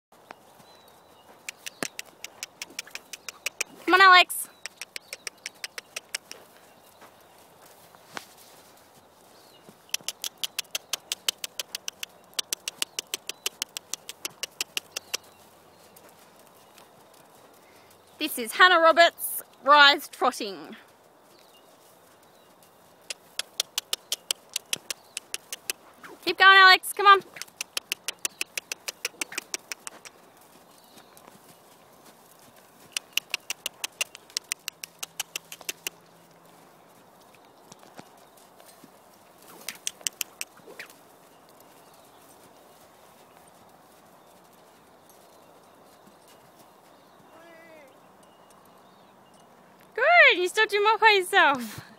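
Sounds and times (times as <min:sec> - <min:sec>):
horse hoofbeats trotting: 0:00.1 - 0:51.9
person clicking tongue: 0:01.4 - 0:03.8, 0:04.5 - 0:06.4, 0:09.9 - 0:15.2, 0:23.1 - 0:25.8, 0:27.2 - 0:30.2, 0:33.0 - 0:36.0, 0:39.5 - 0:40.9.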